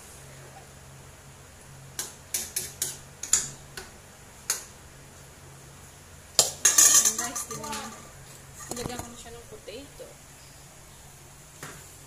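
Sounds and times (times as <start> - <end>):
metal spoon clinking on pot: 6.6 - 8.0.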